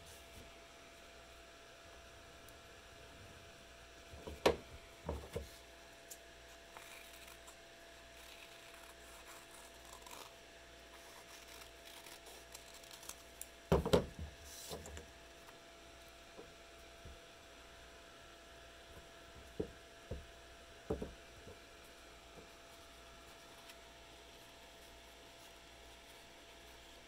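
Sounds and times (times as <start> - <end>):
scissors cutting paper: 6.7 - 10.4, 11.0 - 13.5
knocks on tabletop: 20.9 - 21.1.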